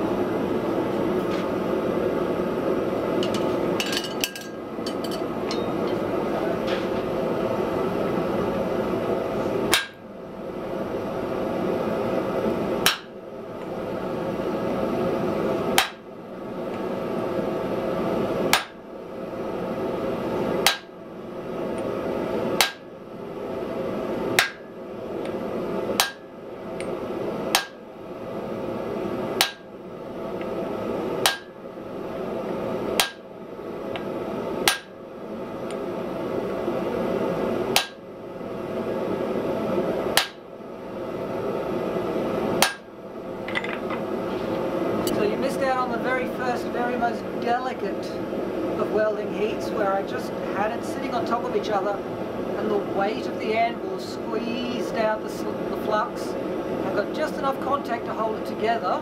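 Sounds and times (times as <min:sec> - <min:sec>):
steady background noise: 0:00.0 - 0:59.0
hammer striking metal on anvil: 0:03.2 - 0:05.7, 0:09.7 - 0:10.0, 0:26.0 - 0:26.2, 0:31.2 - 0:31.5, 0:34.7 - 0:34.9, 0:40.2 - 0:40.4, 0:42.6 - 0:42.9.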